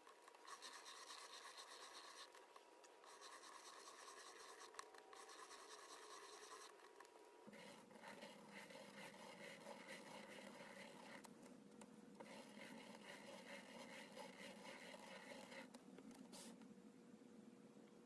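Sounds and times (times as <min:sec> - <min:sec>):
pen scratching on paper: 0:00.0 - 0:02.4, 0:03.0 - 0:11.3, 0:12.2 - 0:15.7.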